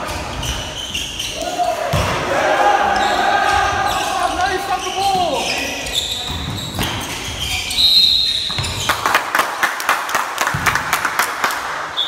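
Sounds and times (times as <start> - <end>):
voices: 0.0 - 7.8
basketball bouncing on court: 1.8 - 2.2, 6.1 - 7.6, 8.3 - 9.0, 10.5 - 10.9
referee's whistle: 7.5 - 8.8.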